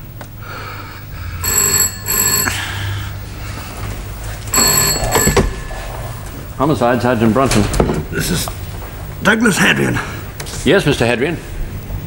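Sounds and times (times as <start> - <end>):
telephone bell ringing: 1.4 - 3.2, 4.5 - 6.6.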